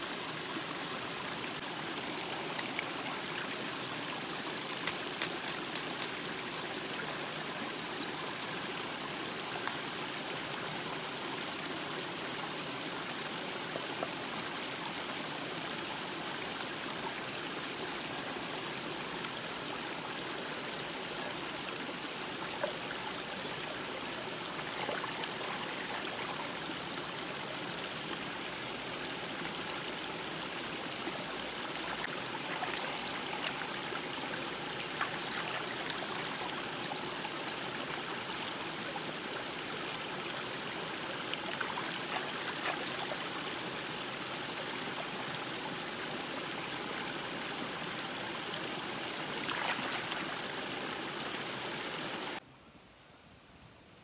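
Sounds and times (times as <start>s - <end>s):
stream flowing over rocks: 0.0s - 52.4s.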